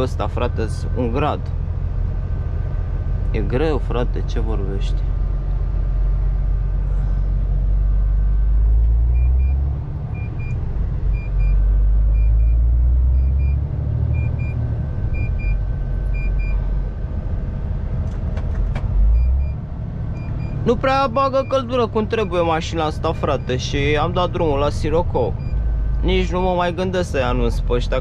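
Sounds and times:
truck engine and road rumble: 0:00.0 - 0:28.0
dashboard double beep: 0:21.2 - 0:22.5.

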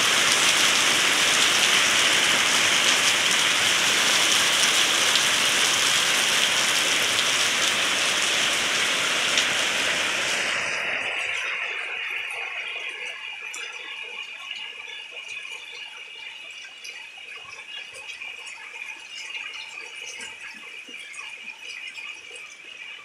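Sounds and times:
torrential rain hissing: 0:00.0 - 0:14.6.

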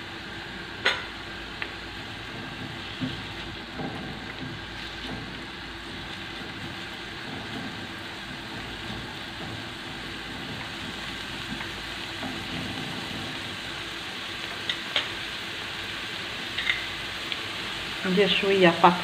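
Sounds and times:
onion sizzling in oil: 0:00.0 - 0:19.0
spatula stirring in pan: 0:02.0 - 0:15.2.

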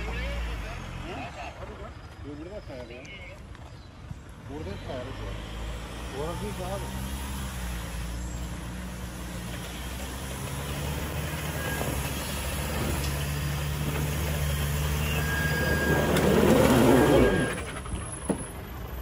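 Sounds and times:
pickup truck engine under load: 0:04.9 - 0:19.0.

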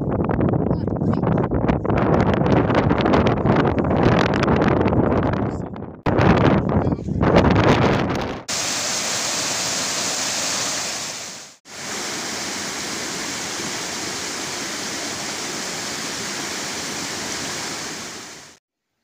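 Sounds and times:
stream rushing over rocks: 0:08.5 - 0:18.6.

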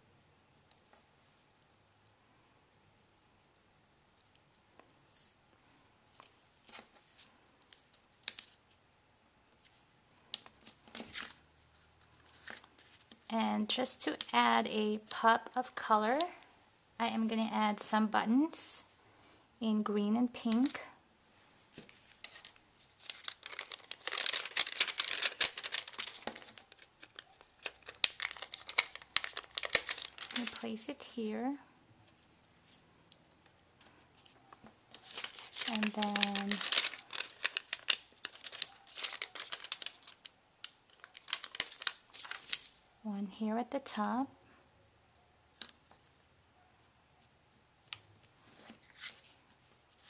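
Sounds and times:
paper clicks and rustles: 0:06.1 - 0:08.8, 0:09.6 - 0:16.4, 0:21.7 - 0:30.8, 0:32.1 - 0:42.9.

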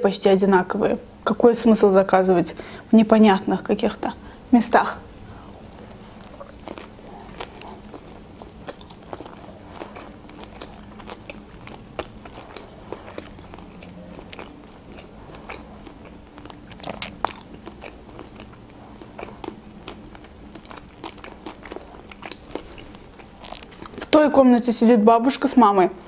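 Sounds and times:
person chewing food: 0:05.0 - 0:24.1.

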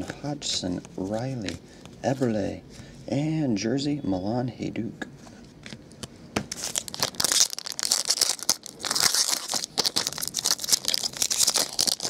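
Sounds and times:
foil wrapper tearing and crinkling: 0:06.5 - 0:12.0.

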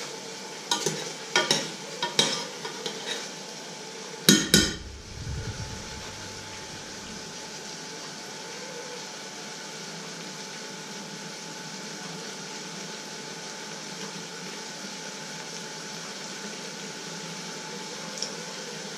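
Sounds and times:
kitchen background hiss: 0:00.0 - 0:18.9
faint steady hum: 0:04.3 - 0:09.0.

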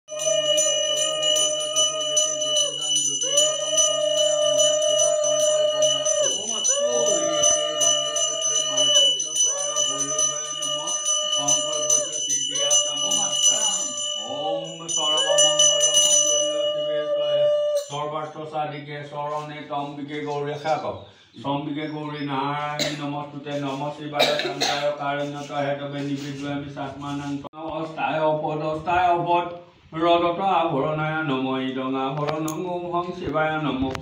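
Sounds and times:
hand bell ringing rapidly: 0:00.1 - 0:17.0.

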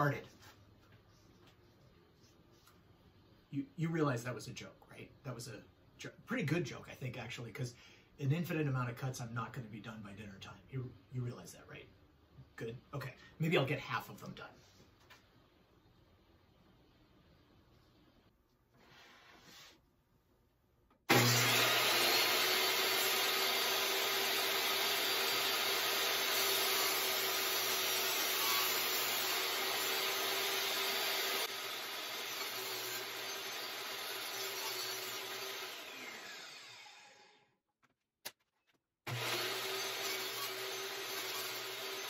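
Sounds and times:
saw motor winding down: 0:21.1 - 0:37.4, 0:39.1 - 0:42.0
table saw cutting wood: 0:21.1 - 0:37.5, 0:39.1 - 0:42.0.

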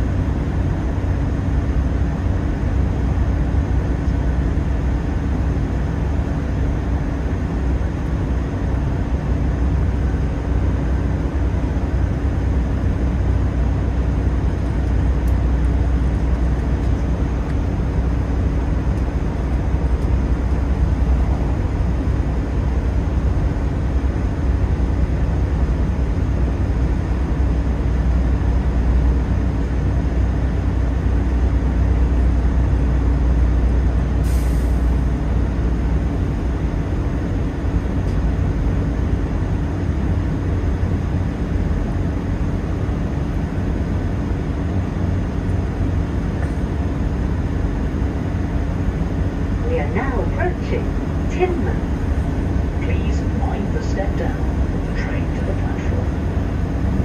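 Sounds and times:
steady hum: 0:00.0 - 0:57.0
train engine and wheels rumbling: 0:00.0 - 0:57.0.

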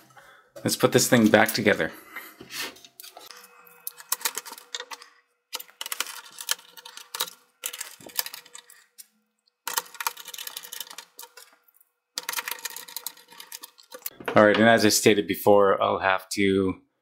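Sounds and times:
plastic clicks and scrapes: 0:02.8 - 0:11.6, 0:12.2 - 0:14.2
screwdriver turning screw: 0:12.2 - 0:14.2.

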